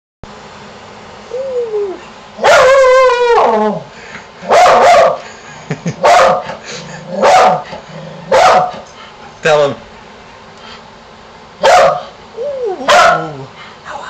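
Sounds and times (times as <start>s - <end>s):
dog howling: 1.3s - 3.9s, 11.6s - 13.5s
dog bark-howls: 1.8s - 3.9s, 4.5s - 5.2s, 6.0s - 6.5s, 7.2s - 7.6s, 8.3s - 8.8s, 11.6s - 13.5s.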